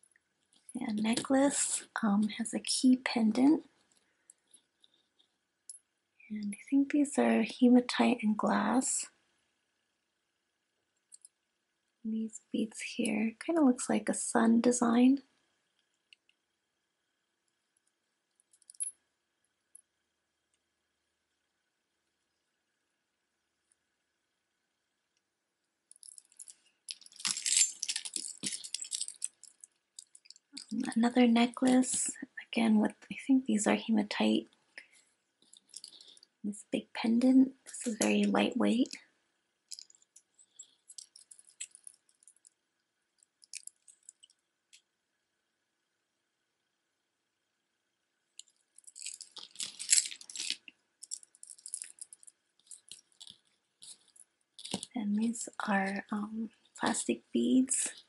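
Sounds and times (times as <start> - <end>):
beaded necklace rattling and clicking: 11.1 - 11.4, 17.8 - 19.0, 25.9 - 32.2, 35.4 - 36.4, 37.6 - 42.6, 43.2 - 44.8, 48.4 - 58.0.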